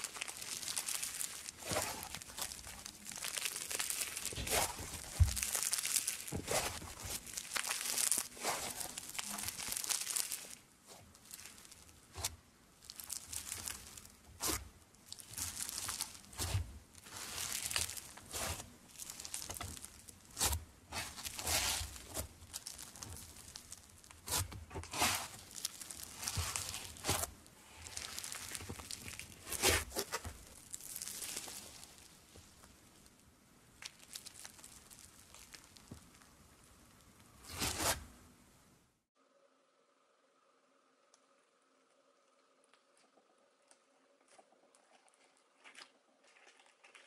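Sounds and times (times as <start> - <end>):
slime crackling and popping: 0.0 - 38.0.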